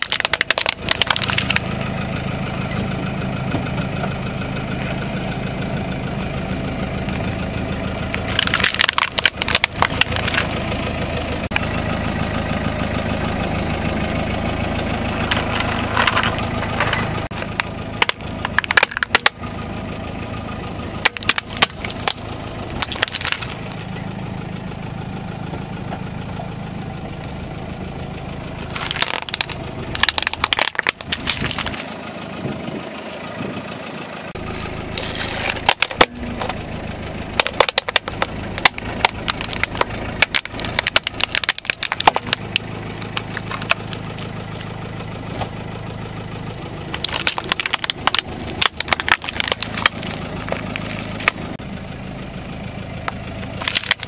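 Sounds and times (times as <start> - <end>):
car engine idling: 0.0 - 54.0
tyre crushing objects: 21.0 - 23.7, 28.7 - 31.9, 37.4 - 44.3, 46.9 - 51.5, 53.6 - 54.0.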